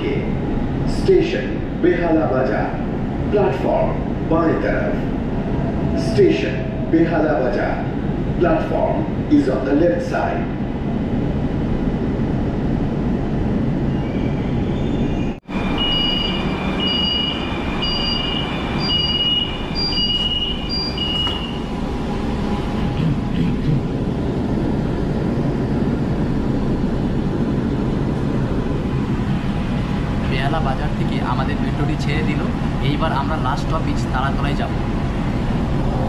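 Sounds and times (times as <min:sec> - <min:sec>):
train hum and rumble: 0:00.0 - 0:36.0.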